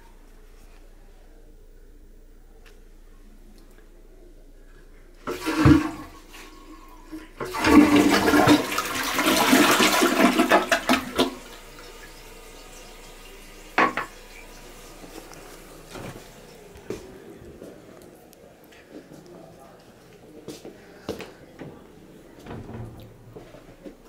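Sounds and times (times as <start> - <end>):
toilet flushing: 5.1 - 17.4.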